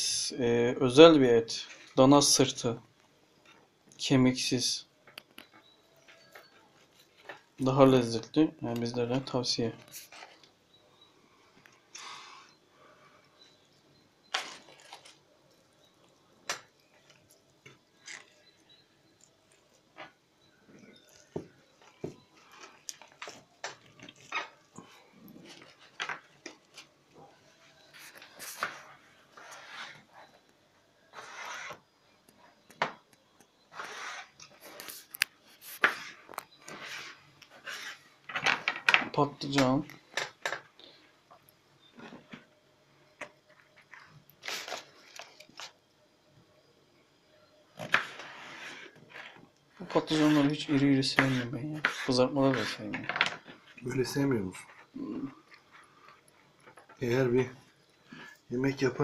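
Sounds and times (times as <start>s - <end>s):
soft wet squishes of meat: 13.0s - 30.6s.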